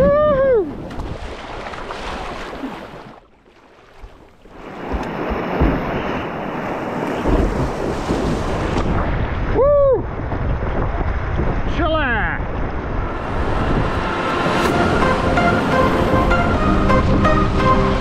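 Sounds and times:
wind buffeting microphone: 4.5s - 18.0s
river water rushing: 13.0s - 18.0s.

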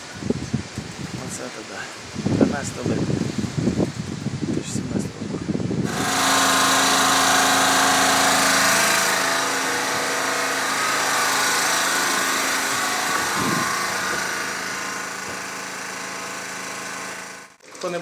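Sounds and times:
portable generator running: 5.8s - 18.0s.

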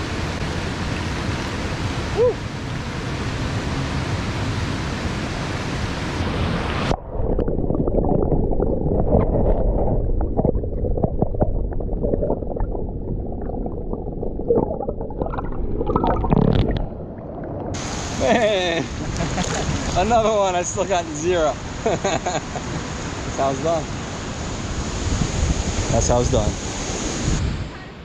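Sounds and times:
underwater bubbling rumble: 6.8s - 18.2s.

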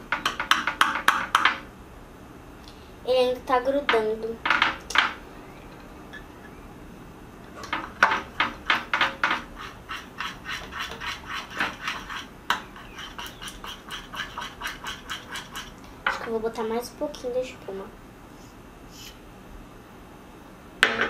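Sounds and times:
spoon scraping glass dish: 9.4s - 15.8s.

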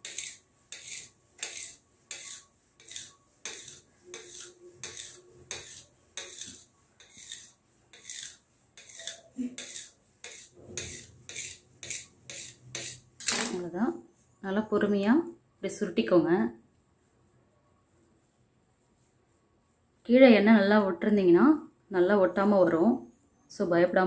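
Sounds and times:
knife slicing dough: 0.0s - 13.2s
knife scraping countertop: 0.0s - 13.7s.

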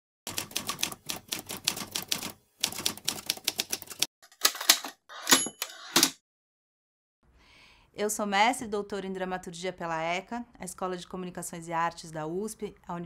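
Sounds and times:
typewriter keys striking: 0.3s - 6.2s
typewriter bell ringing: 5.1s - 6.0s.

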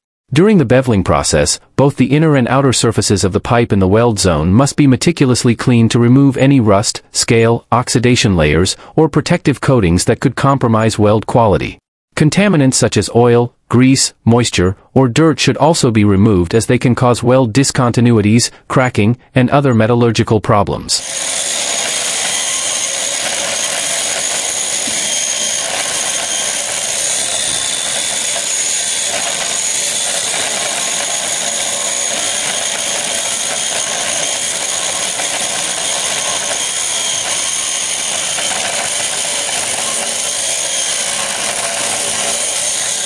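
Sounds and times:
angle grinder grinding steel: 21.0s - 43.0s.

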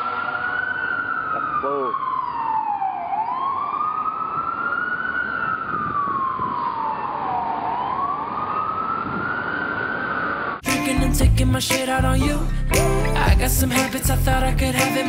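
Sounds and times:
siren wailing: 0.0s - 10.6s.

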